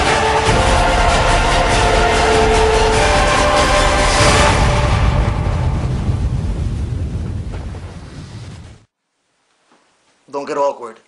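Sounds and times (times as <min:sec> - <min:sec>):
deep heavy rumble: 0:00.0 - 0:08.9.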